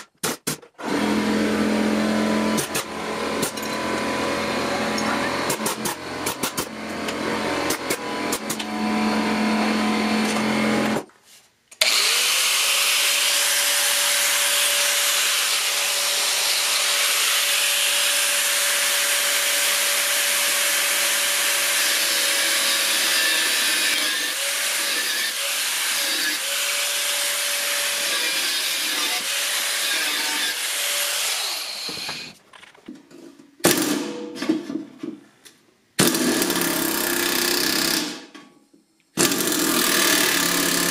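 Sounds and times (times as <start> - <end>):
pneumatic air chisel hammering: 0.0 - 0.7, 2.5 - 4.0, 5.0 - 6.8, 39.2 - 40.9
angle grinder cutting steel: 11.8 - 32.4.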